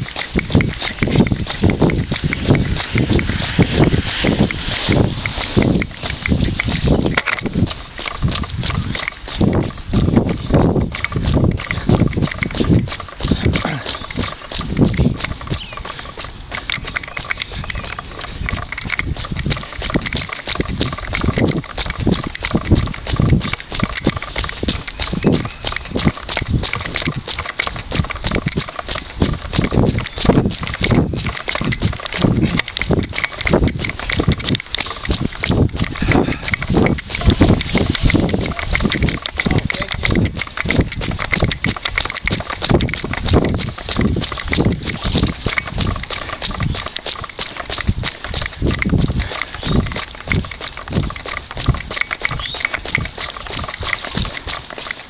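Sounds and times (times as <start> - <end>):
footsteps on wet asphalt: 0.0 - 55.0
hard breathing: 7.8 - 30.0, 30.6 - 42.8, 44.2 - 51.7.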